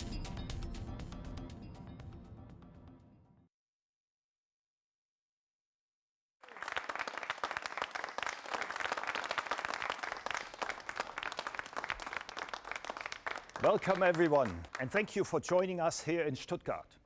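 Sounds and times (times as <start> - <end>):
audience applauding: 6.4 - 15.8.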